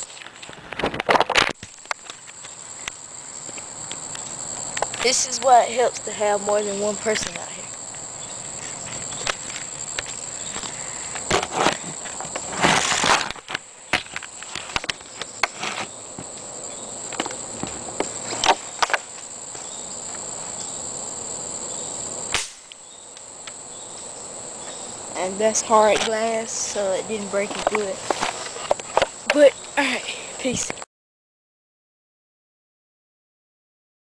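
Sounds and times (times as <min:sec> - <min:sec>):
crickets and insects droning: 0:00.0 - 0:30.9.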